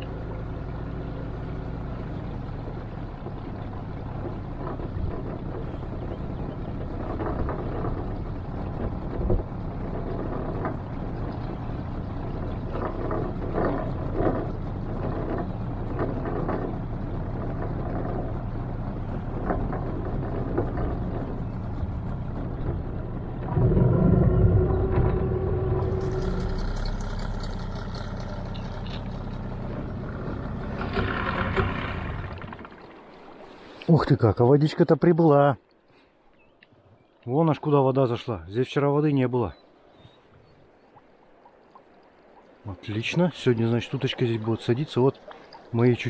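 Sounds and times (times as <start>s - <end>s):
outboard motor running: 0.0s - 33.8s.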